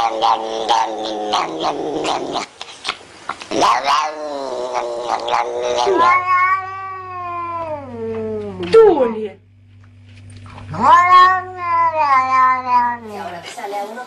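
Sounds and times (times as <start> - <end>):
cat yowling: 3.6 - 8.6, 10.7 - 13.1.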